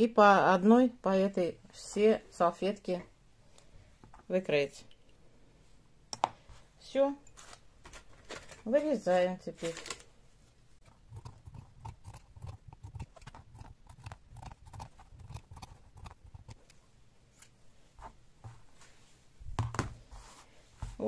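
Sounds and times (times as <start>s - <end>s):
scissors snipping fabric: 10.9s - 16.8s.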